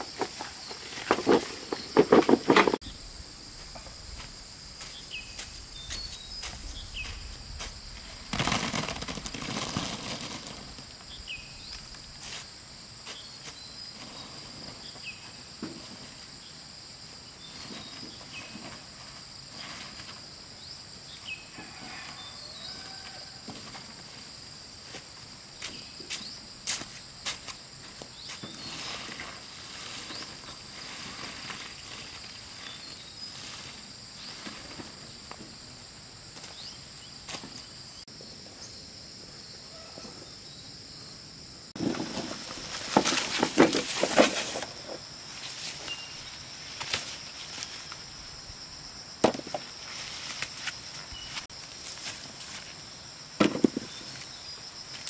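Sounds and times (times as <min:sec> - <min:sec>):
high insect chirring: 0:02.7 - 0:15.6
rustling: 0:05.4 - 0:11.0, 0:41.8 - 0:48.4.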